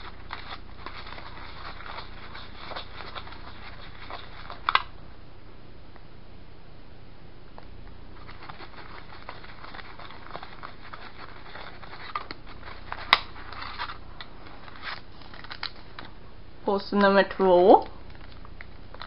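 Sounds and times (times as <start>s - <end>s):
plastic spoon scraping tray: 0.0s - 4.7s, 8.2s - 15.6s.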